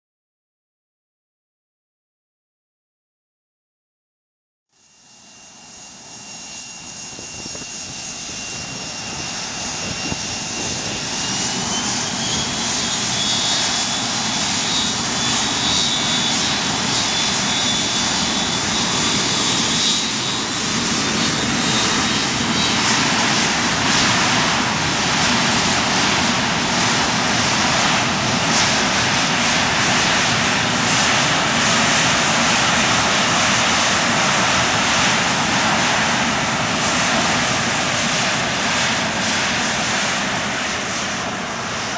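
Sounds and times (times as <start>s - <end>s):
high jet engine whine: 4.7s - 41.9s
jet engines roaring: 4.9s - 41.9s.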